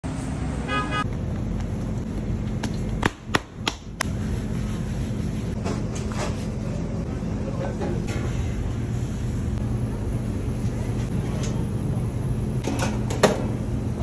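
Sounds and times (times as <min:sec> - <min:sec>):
low background hum: 0:00.1 - 0:14.0.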